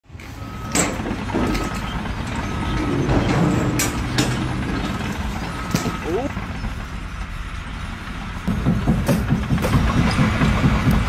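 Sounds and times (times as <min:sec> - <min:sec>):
truck reversing alarm beeping: 0:00.1 - 0:10.9
truck engine running: 0:00.1 - 0:11.0
sharp knocks: 0:08.4 - 0:11.0.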